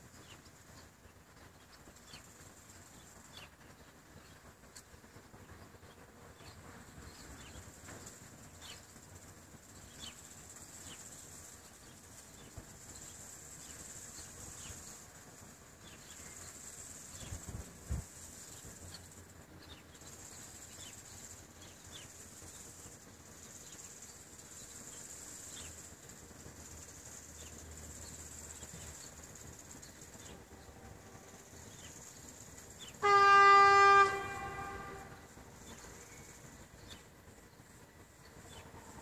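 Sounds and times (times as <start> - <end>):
locomotive horn blast: 33.0 - 35.3.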